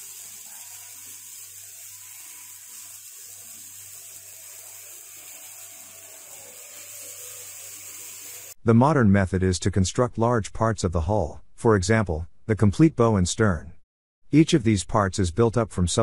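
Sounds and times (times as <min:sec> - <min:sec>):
steady hiss: 0:00.0 - 0:08.6.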